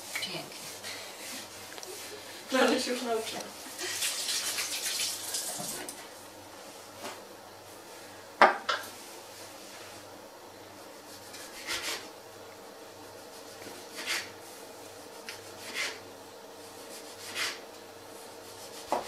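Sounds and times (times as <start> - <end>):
faint steady hum: 0.0 - 19.0
rolling pin rubbing over dough: 13.1 - 19.0.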